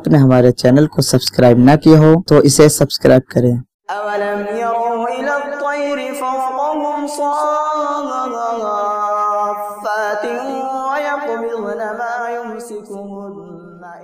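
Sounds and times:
person singing chant-like melody: 3.9s - 14.0s.

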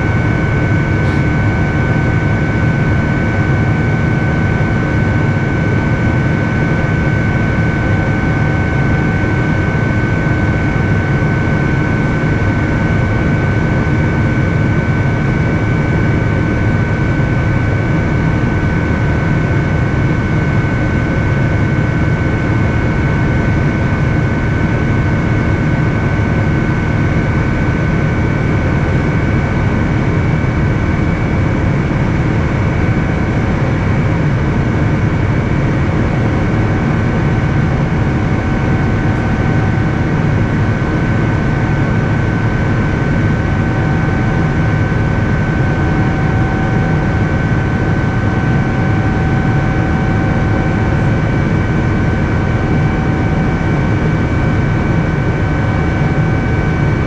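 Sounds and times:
aircraft engine low roar: 0.0s - 57.0s.

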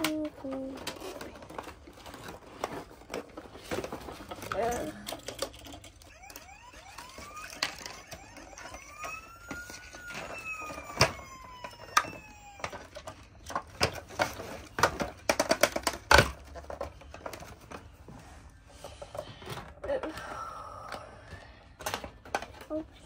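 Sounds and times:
squeaky gliding toy tones: 6.0s - 12.9s
plastic clicks and knocks: 10.8s - 17.8s.

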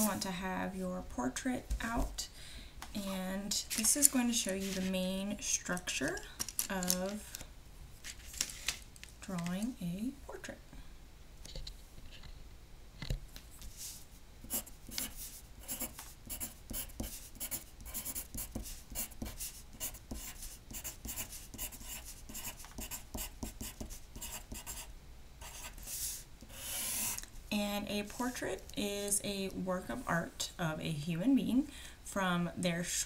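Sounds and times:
pencil writing on paper: 14.5s - 27.2s.

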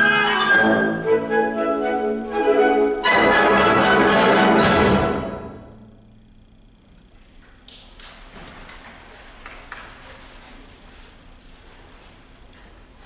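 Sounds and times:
wind band chord: 0.0s - 6.2s.

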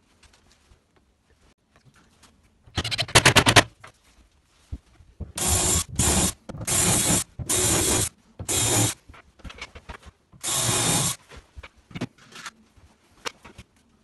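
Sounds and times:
cordless drill driving screws: 10.4s - 11.2s.

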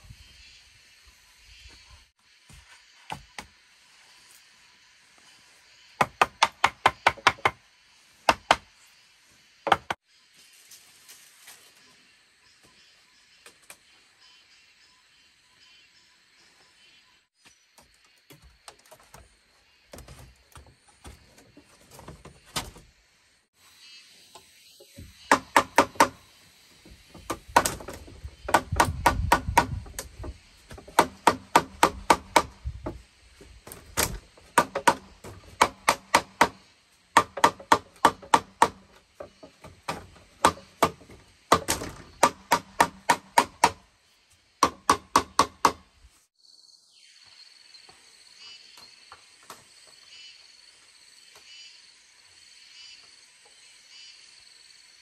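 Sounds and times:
insects trilling: 0.0s - 55.0s
frogs calling: 50.0s - 55.0s.

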